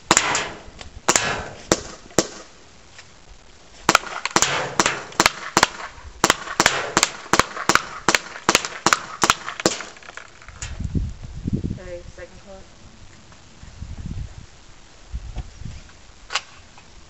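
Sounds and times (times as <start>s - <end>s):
airsoft pistol firing: 0.0s - 2.6s, 3.9s - 10.3s.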